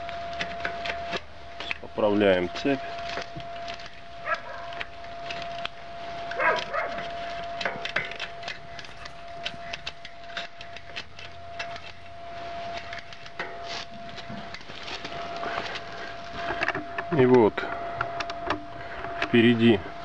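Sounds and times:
bicycle chain clicking and rattling: 0:06.3 - 0:12.0.

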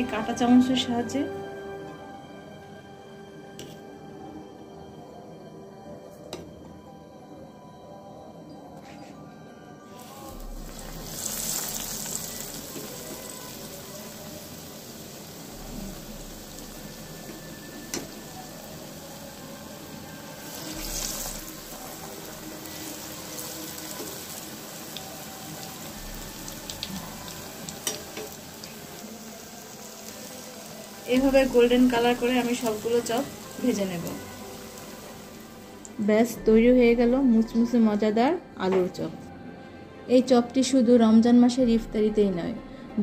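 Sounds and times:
food deep-frying in hot oil: 0:10.0 - 0:36.0.

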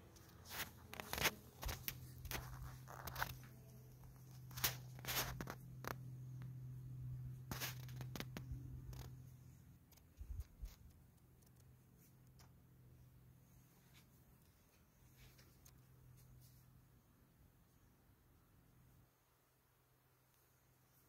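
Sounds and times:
steady low hum: 0:00.0 - 0:19.3.

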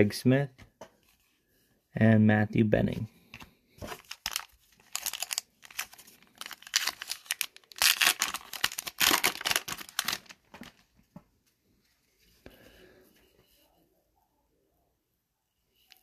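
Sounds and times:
foil wrapper tearing and crinkling: 0:04.0 - 0:10.7.

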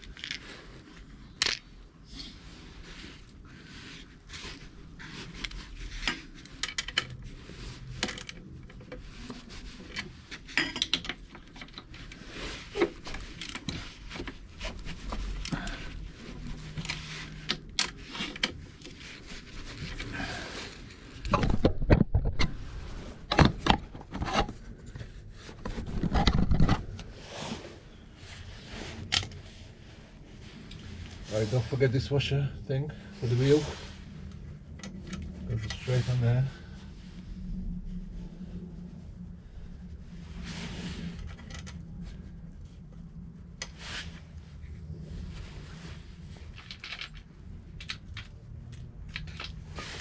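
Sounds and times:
metal tools clinking and scraping: 0:46.5 - 0:47.3.

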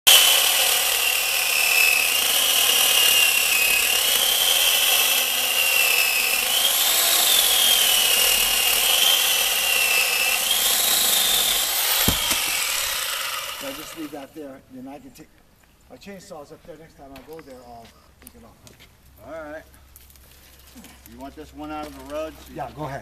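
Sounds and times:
electric chainsaw cutting branch: 0:00.1 - 0:14.2.

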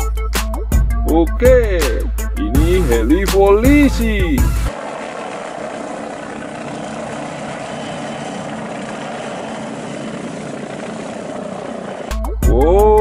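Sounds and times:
helicopter flying past: 0:04.4 - 0:12.6.

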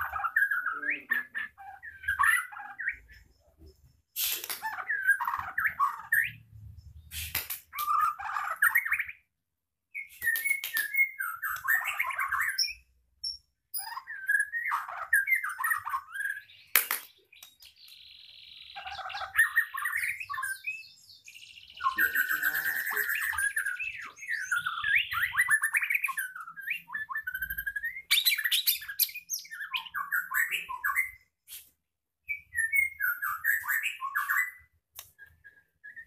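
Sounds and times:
bird trilling: 0:00.0 - 0:03.5, 0:04.2 - 0:06.4, 0:17.8 - 0:31.2
songbird singing: 0:00.0 - 0:31.4, 0:32.0 - 0:36.0.

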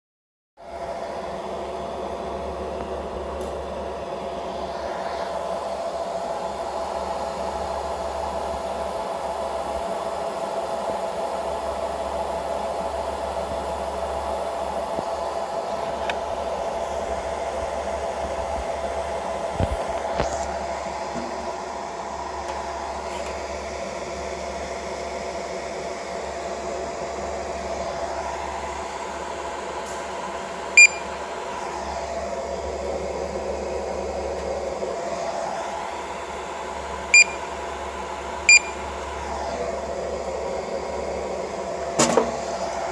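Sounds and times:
machine fan hum: 0:00.6 - 0:42.9
faint whine: 0:30.7 - 0:34.5, 0:35.1 - 0:37.6, 0:38.4 - 0:41.6
barcode scanner beep: 0:30.8 - 0:31.1, 0:37.2 - 0:37.5, 0:38.5 - 0:38.8.

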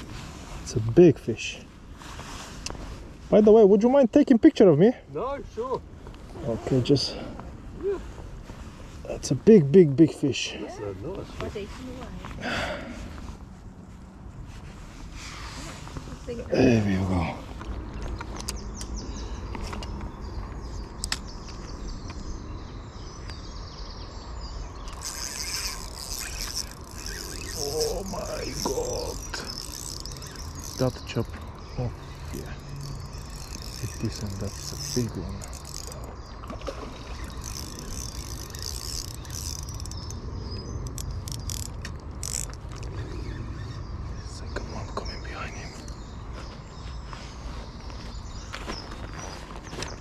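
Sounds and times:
small birds chirping: 0:15.2 - 0:50.0
fishing reel clicking: 0:24.8 - 0:36.1, 0:37.1 - 0:40.2, 0:40.8 - 0:42.9
sharp clicks: 0:37.2 - 0:43.0.

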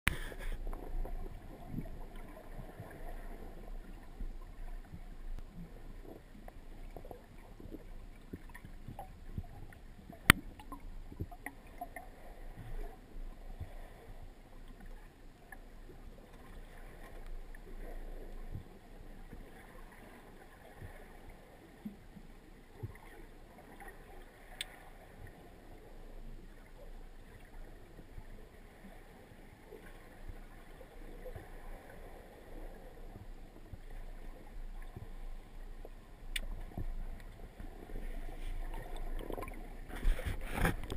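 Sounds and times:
faint clicks: 0:24.5 - 0:24.8, 0:36.2 - 0:37.8.

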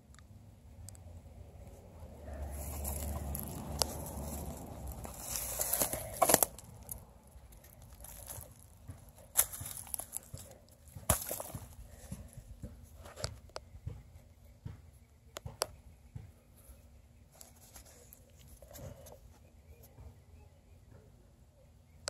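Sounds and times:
hand digging in dry dirt and twigs: 0:01.6 - 0:13.5, 0:17.3 - 0:19.4.

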